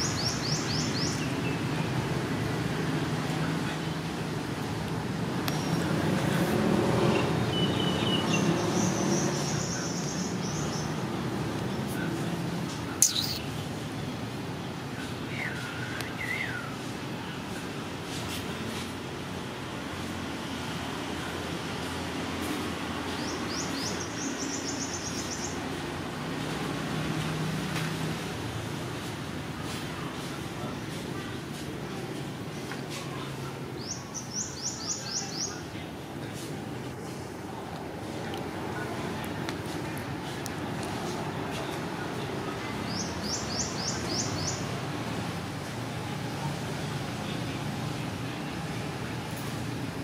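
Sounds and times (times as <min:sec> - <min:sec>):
road traffic rumble: 0:00.0 - 0:50.0
bird trilling: 0:13.0 - 0:13.4
faint high chirps: 0:13.0 - 0:13.5.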